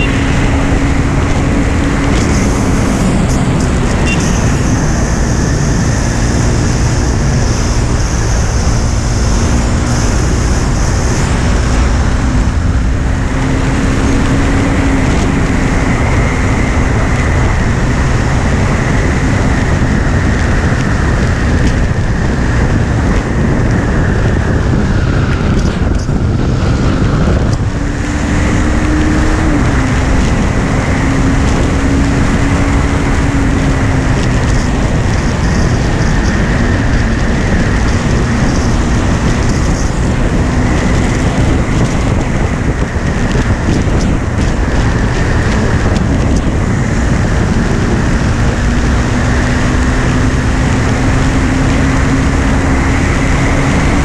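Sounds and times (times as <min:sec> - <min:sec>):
motorcycle engine running hard: 0:00.0 - 0:54.0
wind buffeting microphone: 0:00.0 - 0:54.0.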